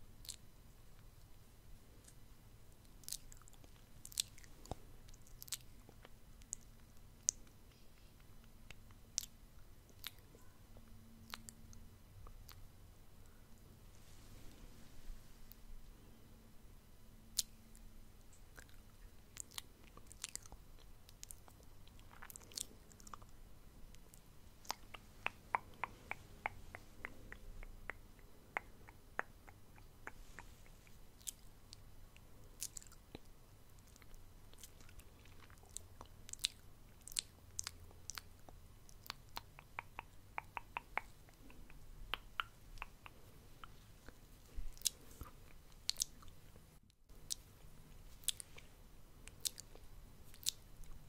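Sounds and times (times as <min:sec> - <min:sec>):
wet tongue clicks: 0:00.2 - 0:00.4, 0:03.0 - 0:12.7, 0:17.3 - 0:23.3, 0:23.9 - 0:31.8, 0:32.6 - 0:46.4, 0:47.2 - 0:48.6, 0:49.2 - 0:51.0
lip smacks: 0:00.2 - 0:01.1, 0:02.8 - 0:13.4, 0:17.3 - 0:23.3, 0:23.9 - 0:51.0.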